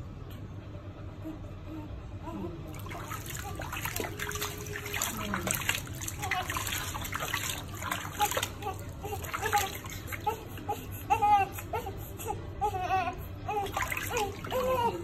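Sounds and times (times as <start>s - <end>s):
water splashing in baby tub: 2.7s - 10.8s, 13.5s - 15.0s.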